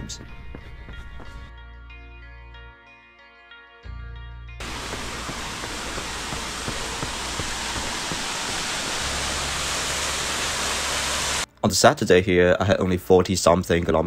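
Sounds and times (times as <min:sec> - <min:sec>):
music: 0:00.0 - 0:07.6
small waterfall rushing over rocks: 0:04.6 - 0:11.4.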